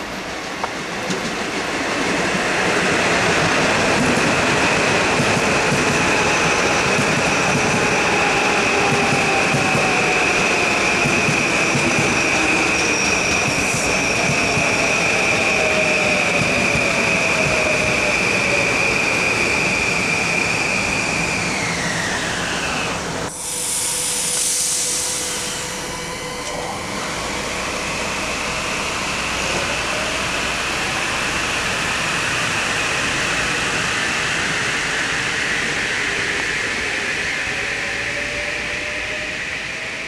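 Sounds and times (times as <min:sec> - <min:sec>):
loud air hiss: 0:18.2 - 0:26.2.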